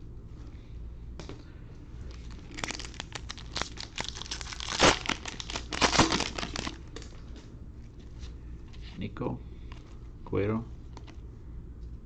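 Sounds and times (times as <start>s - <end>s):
card pack wrapper tearing: 2.3s - 7.1s.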